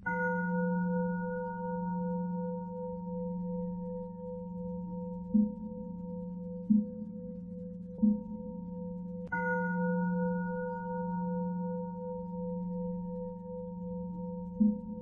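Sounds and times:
soft low strike: 5.2 - 9.4, 14.4 - 15.0.

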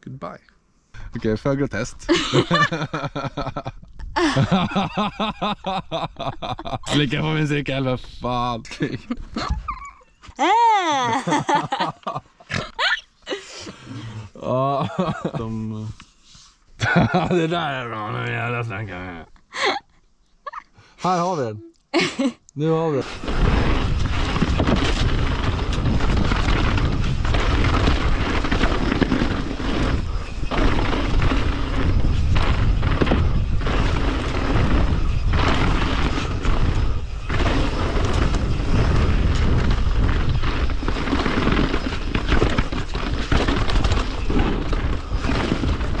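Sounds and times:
bike rattling over rough trail: 2.1 - 3.7, 4.3 - 8.6, 23.0 - 46.0
wind buffeting microphone: 23.0 - 46.0.

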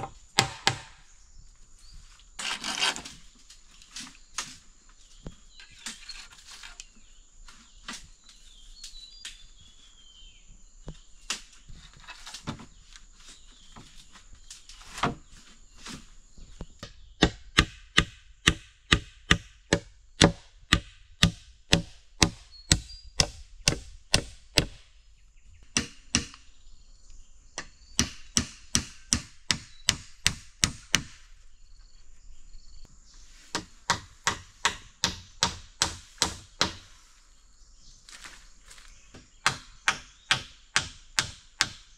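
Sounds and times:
hammer striking bamboo poles: 0.0 - 1.0, 16.8 - 24.8, 25.7 - 26.4, 28.0 - 31.2, 33.5 - 36.9, 39.2 - 41.9.

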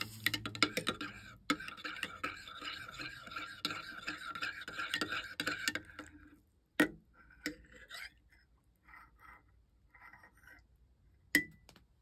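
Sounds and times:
liquid swishing: 0.0 - 6.4.

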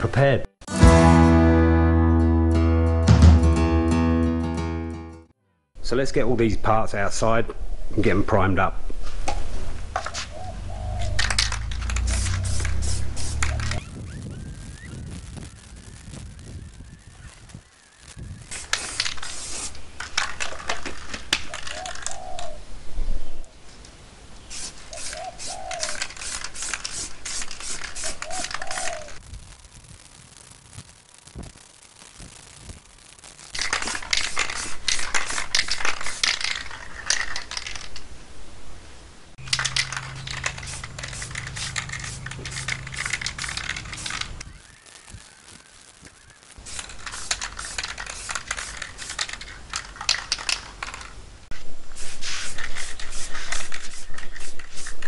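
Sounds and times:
metal parts clinking and rattling: 11.1 - 12.8, 20.0 - 22.2, 33.6 - 38.0, 39.4 - 44.3, 46.8 - 51.2.

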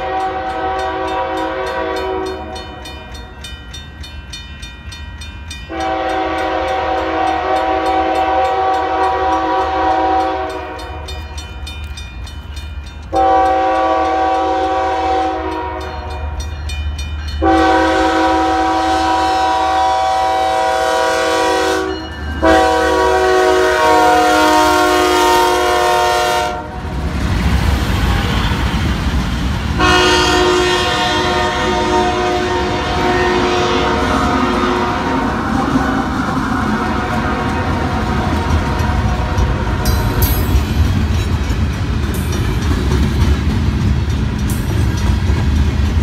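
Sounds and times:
locomotive air horn blasts: 0.0 - 2.8, 5.7 - 11.0, 13.1 - 16.2, 17.4 - 26.8, 28.0 - 28.8, 29.8 - 40.2
crossing bell dinging: 0.0 - 26.2, 29.8 - 46.0.

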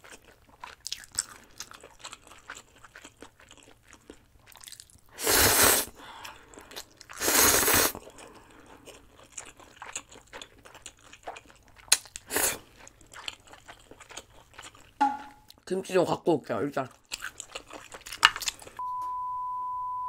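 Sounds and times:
soft wet chewing: 0.0 - 5.2, 6.0 - 15.6, 16.8 - 18.8
person slurping noodles: 5.2 - 6.0, 6.6 - 8.2, 12.2 - 12.7.

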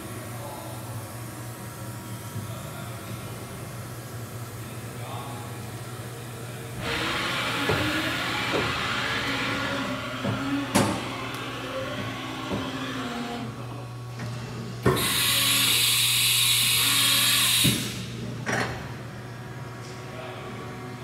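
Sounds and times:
machine hum with whine: 0.0 - 21.0.

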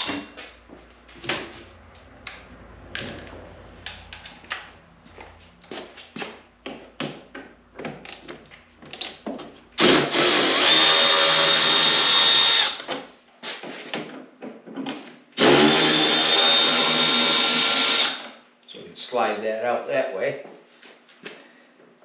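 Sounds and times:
power drill whining: 9.8 - 12.9, 15.4 - 18.4.

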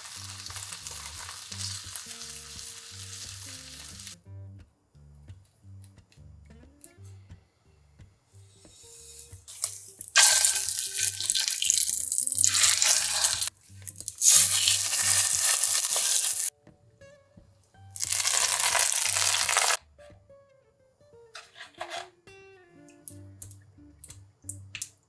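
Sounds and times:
pork sizzling in hot oil: 0.0 - 4.2, 8.5 - 16.5, 18.0 - 19.8.

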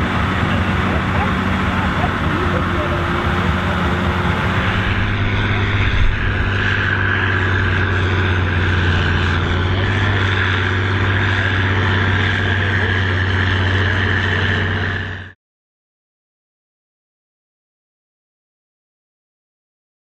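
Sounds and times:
tractor engine under heavy load: 0.0 - 15.4.

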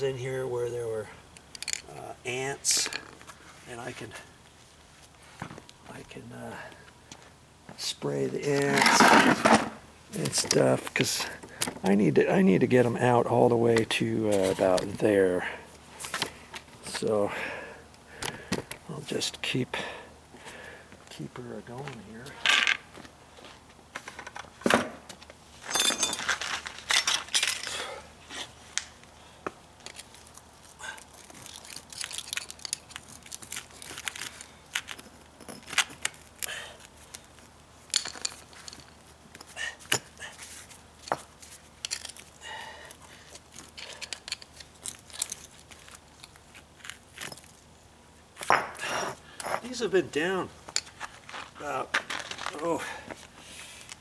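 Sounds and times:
pavers scraping and clinking: 8.4 - 11.4, 25.6 - 27.9.

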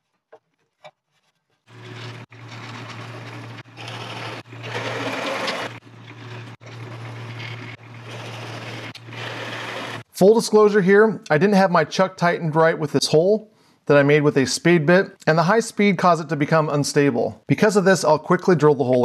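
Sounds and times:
drill press motor hum: 1.7 - 10.1
drill bit boring into wood: 1.8 - 5.8, 6.4 - 10.1.

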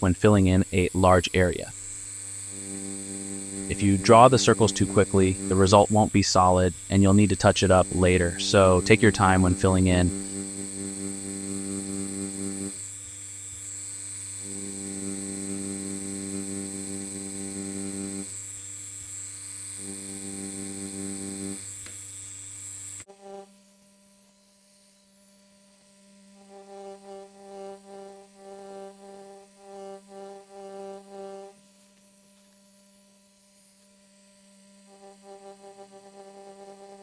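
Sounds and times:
tattoo machine buzzing: 0.0 - 37.0.

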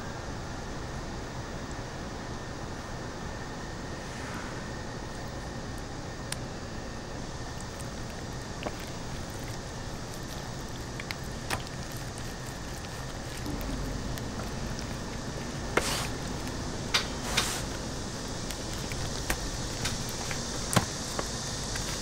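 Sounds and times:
steady background hiss: 0.0 - 22.0
wet squishing: 7.2 - 22.0
wet smacks: 7.4 - 22.0.

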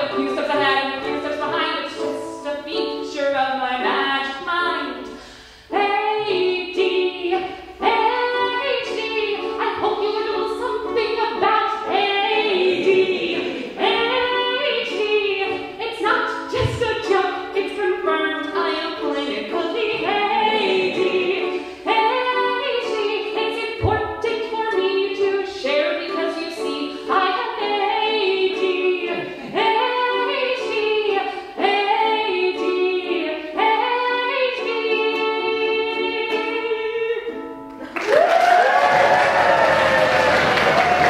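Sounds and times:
woman singing: 0.0 - 37.6
ukulele strumming: 0.0 - 38.0
audience applause and cheering: 37.9 - 41.0.

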